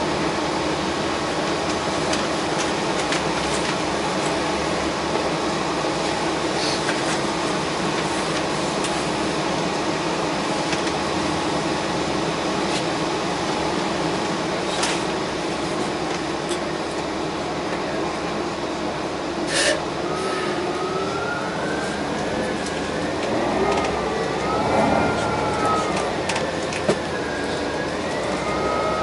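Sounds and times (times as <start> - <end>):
bus engine and air conditioning hum: 0.0 - 29.0
faint siren: 19.9 - 29.0.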